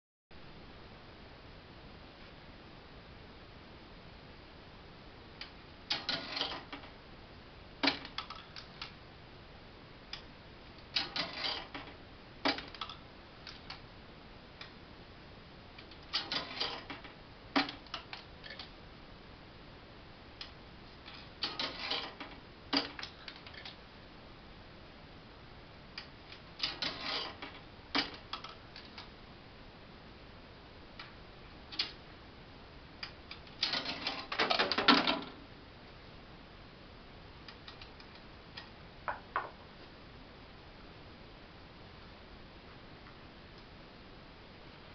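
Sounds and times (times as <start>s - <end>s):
gambling machine clattering: 5.9s - 6.9s, 11.0s - 11.9s, 16.1s - 17.8s, 21.4s - 23.7s, 26.6s - 28.2s, 33.6s - 35.4s.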